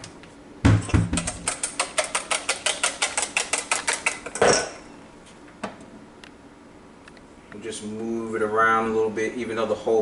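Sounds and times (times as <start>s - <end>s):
eggs beaten in a bowl: 0.6s - 4.4s.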